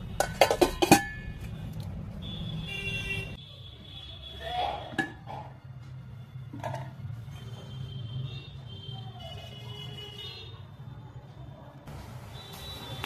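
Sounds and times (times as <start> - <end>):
metal lid clinking on pot: 0.2 - 1.3, 4.9 - 5.5.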